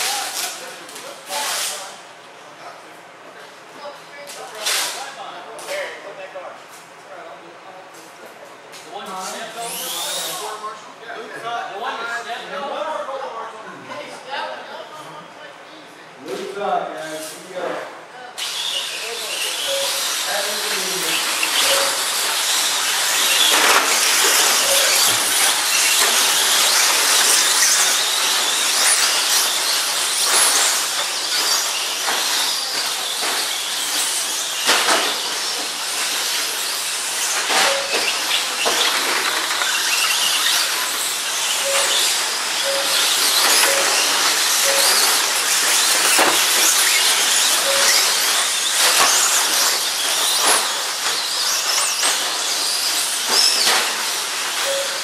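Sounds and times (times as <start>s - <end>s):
rc trucks whining and hissing: 9.3s - 10.6s, 18.4s - 55.0s
short beeps: 19.6s - 20.3s, 21.5s - 22.2s, 24.3s - 25.4s, 37.6s - 38.3s, 41.6s - 45.8s, 47.5s - 49.0s, 54.6s - 55.0s.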